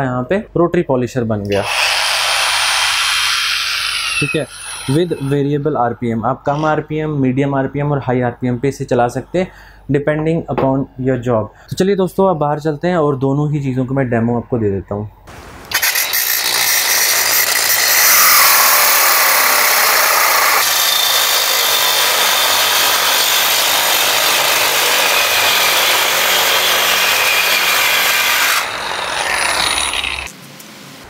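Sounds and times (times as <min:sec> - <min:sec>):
angle grinder cutting metal rod: 0:01.5 - 0:05.5, 0:06.5 - 0:06.8, 0:15.7 - 0:30.4.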